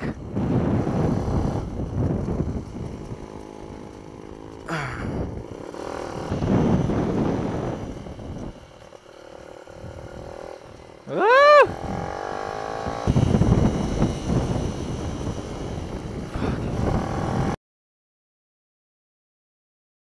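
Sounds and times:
mini-bike engine: 0:00.0 - 0:17.6
whoop-like tone sweeping in pitch: 0:11.1 - 0:11.8.

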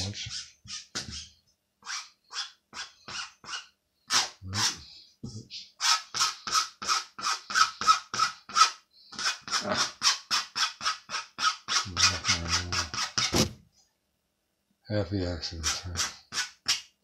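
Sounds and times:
rubbing strokes on paper: 0:00.0 - 0:04.9, 0:05.8 - 0:13.5.

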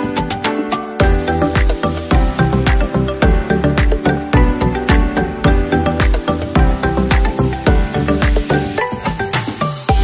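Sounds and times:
upbeat music: 0:00.0 - 0:10.0
deep kick drum: 0:01.0 - 0:08.5.

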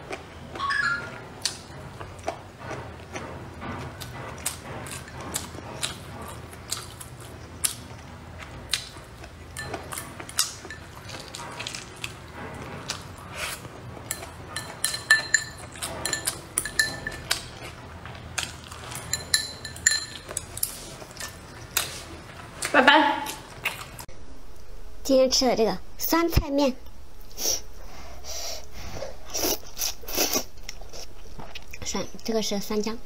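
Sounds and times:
utensils clinking on dishes: 0:09.5 - 0:22.4.

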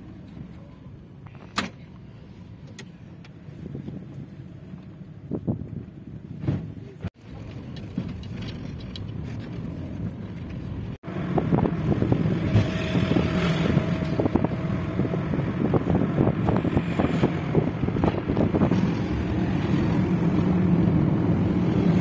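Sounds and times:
car engine and tyre noise: 0:00.0 - 0:22.0
wind buffeting microphone: 0:05.2 - 0:22.0.

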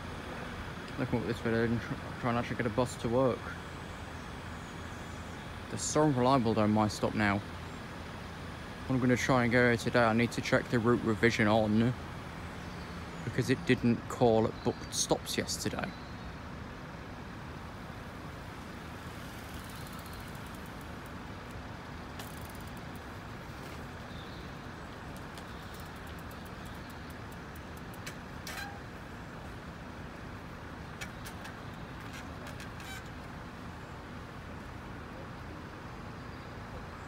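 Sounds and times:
road traffic rumble: 0:00.0 - 0:37.0
faint clicks: 0:19.5 - 0:23.8, 0:25.1 - 0:28.7.

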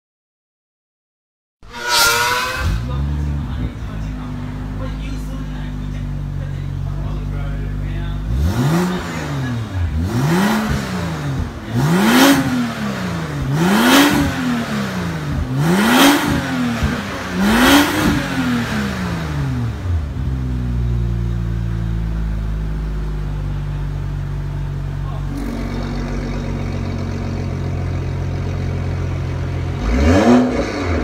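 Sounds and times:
car engine revving: 0:01.6 - 0:31.0
car engine idling: 0:02.2 - 0:31.0.

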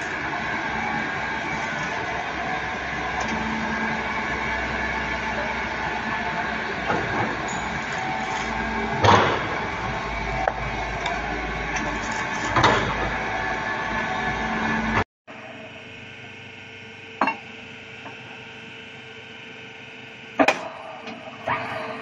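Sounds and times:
drilling rig mechanical drone: 0:00.0 - 0:22.0
steady whining tones: 0:00.0 - 0:22.0.

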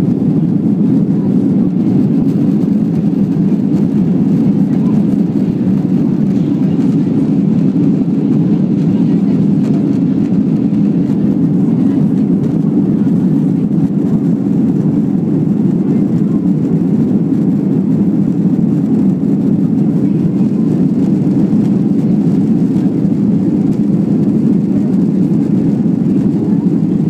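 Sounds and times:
jet engines rumbling in cabin: 0:00.0 - 0:27.0.

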